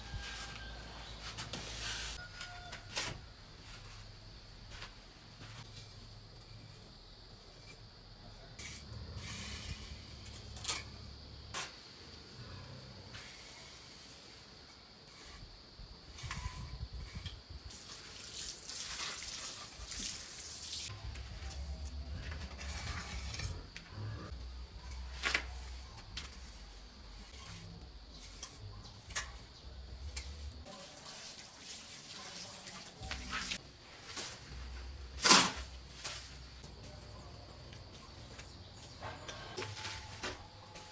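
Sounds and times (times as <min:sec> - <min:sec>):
water splashing onto cement: 0:17.7 - 0:20.9.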